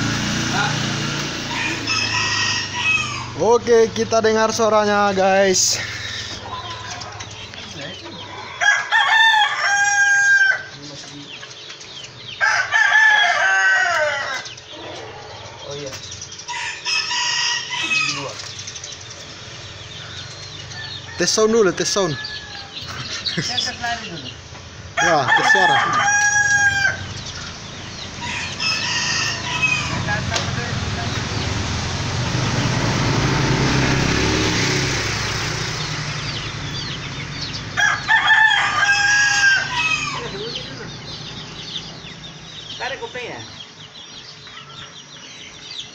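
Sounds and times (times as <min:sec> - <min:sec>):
two-stroke motorcycle engine: 0:00.0 - 0:05.5, 0:29.3 - 0:38.1
rooster crowing: 0:00.6 - 0:03.4, 0:08.2 - 0:10.8, 0:12.4 - 0:15.6, 0:16.5 - 0:18.4, 0:20.0 - 0:23.2, 0:24.9 - 0:31.5, 0:36.8 - 0:41.8.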